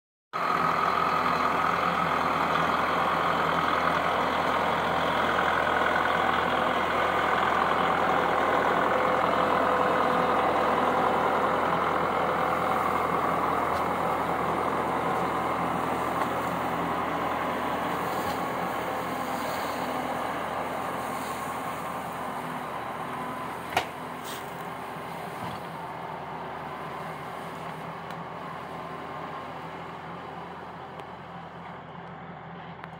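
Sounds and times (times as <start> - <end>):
tractor diesel engine running: 0.3 - 32.9.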